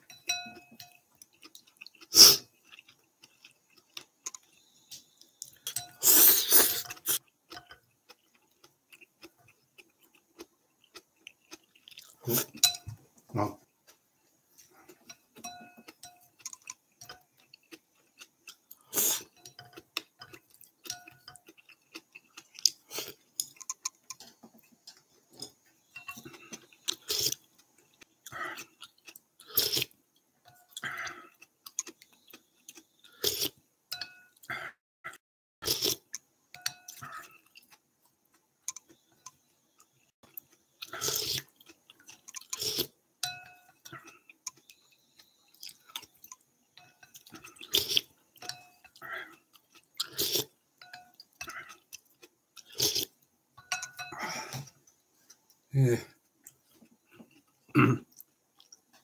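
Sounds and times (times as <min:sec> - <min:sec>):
spoon clinking against bowl: 0:00.0 - 0:01.0, 0:12.6 - 0:13.0, 0:15.1 - 0:17.2, 0:33.9 - 0:34.3, 0:43.2 - 0:43.8, 0:50.8 - 0:51.2, 0:53.6 - 0:54.2
person chewing: 0:00.2 - 0:55.7, 0:56.4 - 0:59.0
person sipping soup: 0:01.3 - 0:09.4, 0:14.6 - 0:24.4, 0:28.2 - 0:29.9, 0:35.6 - 0:36.2, 0:40.4 - 0:42.9, 0:47.3 - 0:54.9.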